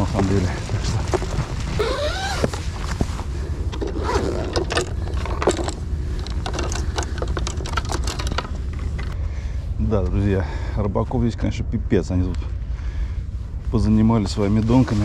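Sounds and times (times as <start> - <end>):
wind rumble on microphone: 0.0 - 15.0
hard case clicks and clatter: 3.7 - 9.2.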